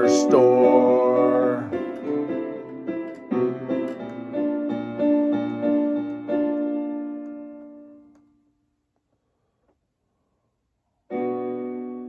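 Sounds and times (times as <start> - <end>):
electronic keyboard playing piano chords: 0.0 - 8.4, 11.1 - 12.0.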